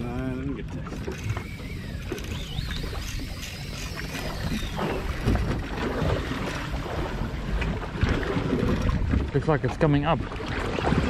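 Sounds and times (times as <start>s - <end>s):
water slapping against boat: 0.0s - 11.0s
wind buffeting microphone: 0.0s - 11.0s
faint high wavering tone: 1.2s - 5.6s.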